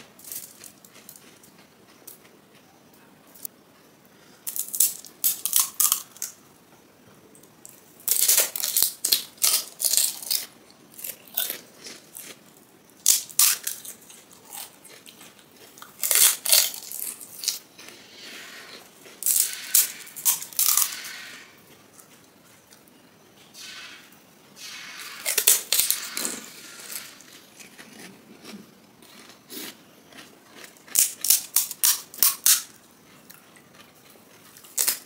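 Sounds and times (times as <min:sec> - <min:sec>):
crisp shells crunching: 0:08.1 - 0:12.4, 0:13.0 - 0:18.0, 0:18.6 - 0:21.4, 0:25.0 - 0:32.7.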